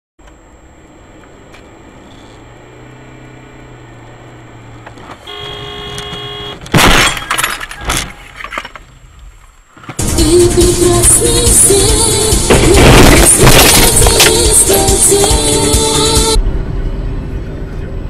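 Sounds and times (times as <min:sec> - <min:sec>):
road and engine hum: 0:00.2 - 0:18.0
car horn: 0:04.6 - 0:06.7
car crash: 0:06.1 - 0:09.2, 0:12.2 - 0:14.7
bangs and scraping: 0:06.6 - 0:10.0, 0:12.4 - 0:14.7.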